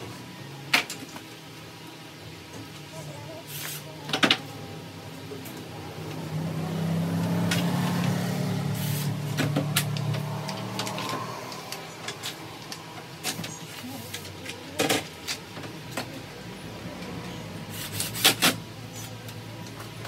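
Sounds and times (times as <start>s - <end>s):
low engine hum: 4.4s - 14.0s.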